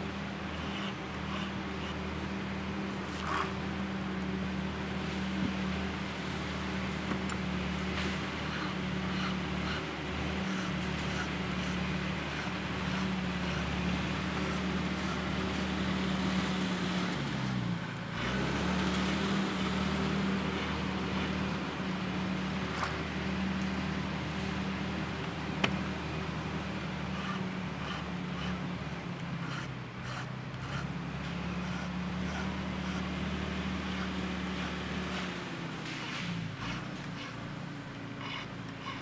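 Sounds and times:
engine running: 0:00.0 - 0:39.0
file rasping on chainsaw chain: 0:00.5 - 0:02.0, 0:08.4 - 0:15.4, 0:27.1 - 0:35.4, 0:38.2 - 0:39.0.

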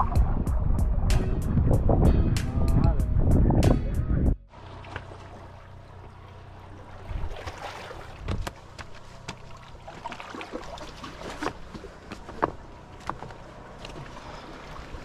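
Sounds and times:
low steady hum: 0:00.0 - 0:15.0
sea water splashing: 0:04.5 - 0:15.0.

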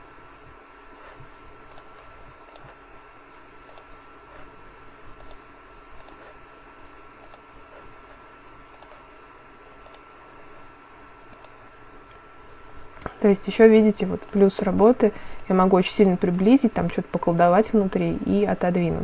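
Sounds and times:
computer mouse clicking: 0:01.0 - 0:02.8, 0:03.6 - 0:04.5, 0:05.2 - 0:05.4, 0:06.0 - 0:06.4, 0:07.2 - 0:09.0, 0:09.8 - 0:10.1, 0:11.3 - 0:11.6, 0:14.2 - 0:15.6, 0:16.3 - 0:16.6, 0:17.3 - 0:17.6.

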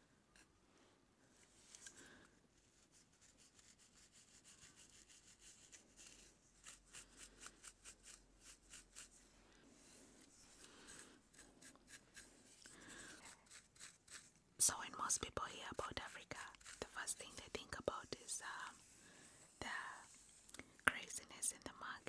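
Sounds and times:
comb and nails scratching hair: 0:02.8 - 0:09.2, 0:09.8 - 0:21.6.

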